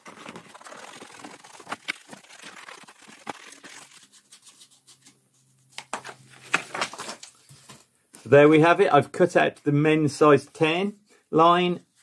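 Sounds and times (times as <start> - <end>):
paper rustling and crinkling: 0.0 - 7.9.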